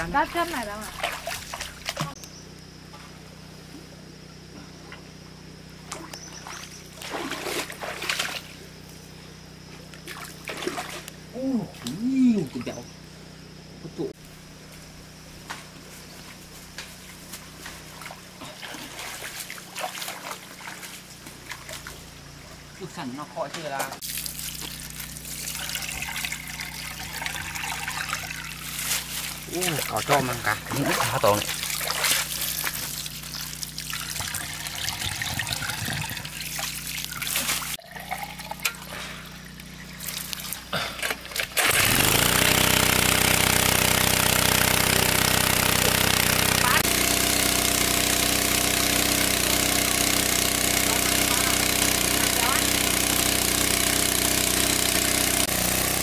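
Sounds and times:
water splashing and sloshing: 0:00.0 - 0:02.2, 0:05.8 - 0:09.0, 0:09.7 - 0:11.2, 0:15.6 - 0:41.8
water pump humming: 0:00.0 - 0:56.0.

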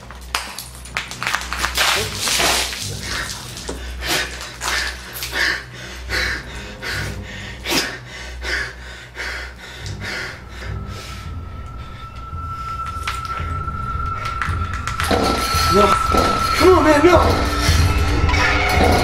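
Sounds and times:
man breathing hard and gasping: 0:02.9 - 0:12.8.

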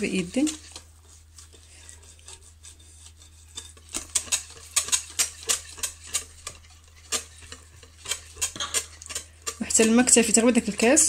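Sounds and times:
wire whisk beating in glass bowl: 0:03.5 - 0:11.0.

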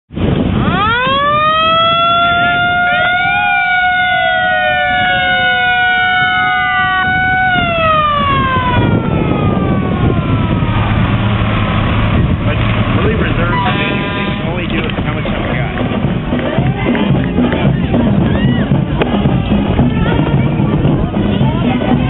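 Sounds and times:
fire engine siren wailing: 0:00.2 - 0:15.3.

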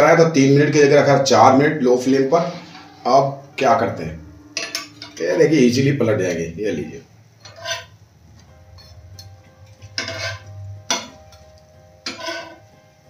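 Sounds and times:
metal spatula scraping a pan: 0:02.2 - 0:03.4, 0:04.6 - 0:05.2, 0:07.4 - 0:08.0, 0:08.8 - 0:12.8
low steady hum: 0:02.3 - 0:12.1.

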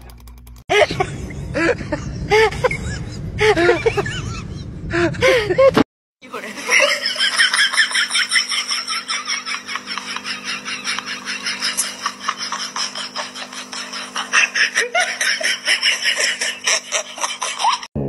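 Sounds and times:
steady low hum: 0:00.0 - 0:05.8, 0:06.4 - 0:17.8
person laughing hard: 0:00.7 - 0:05.8, 0:06.6 - 0:17.9
low rumble: 0:00.8 - 0:05.8.

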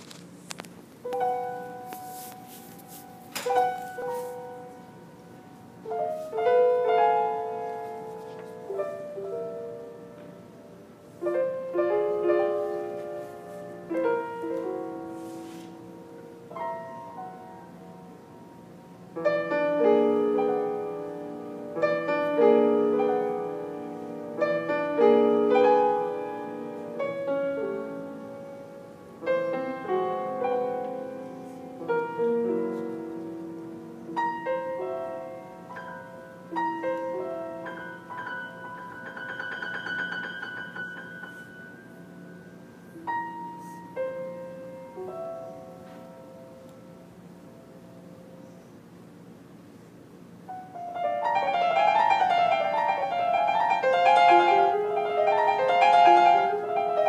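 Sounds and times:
slow classical piano piece: 0:00.0 - 0:57.0.

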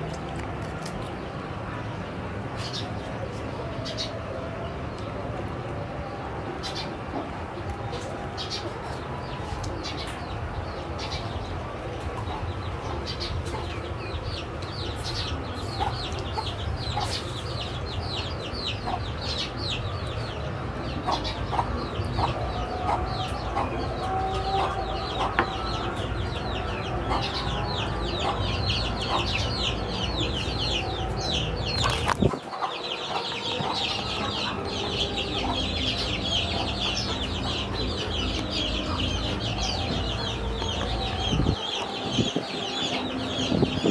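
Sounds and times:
chickens clucking: 0:06.0 - 0:43.9
chicks peeping: 0:06.6 - 0:43.9.

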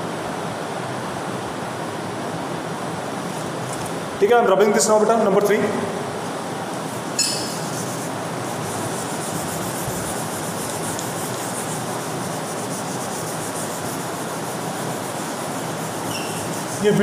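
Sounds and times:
eraser scrape: 0:07.3 - 0:16.9
eraser rubbing whiteboard: 0:07.3 - 0:17.0.

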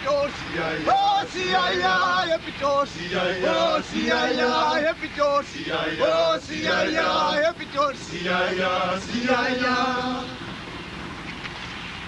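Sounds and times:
male voices singing together: 0:00.0 - 0:10.4.

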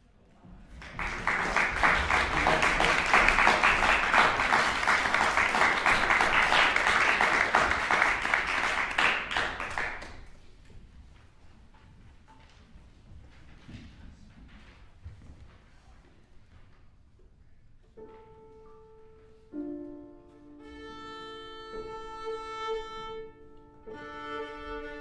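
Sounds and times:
audience applauding: 0:00.7 - 0:10.3.

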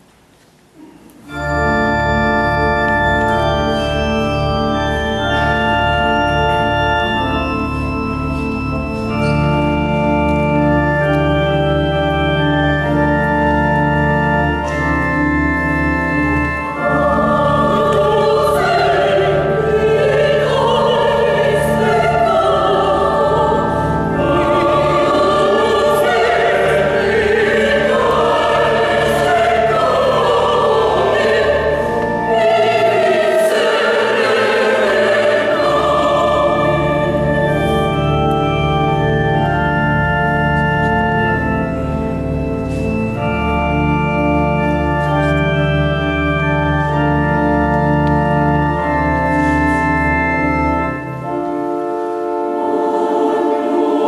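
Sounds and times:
organ chords: 0:00.7 - 0:54.0
mixed choir singing: 0:16.8 - 0:38.1, 0:52.4 - 0:54.0.

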